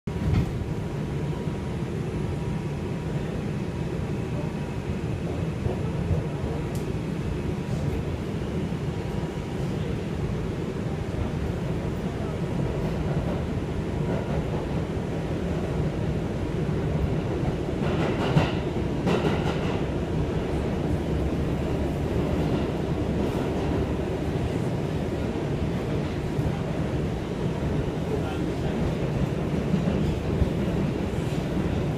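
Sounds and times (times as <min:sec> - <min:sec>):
subway car rumbling on track: 0:00.1 - 0:31.9.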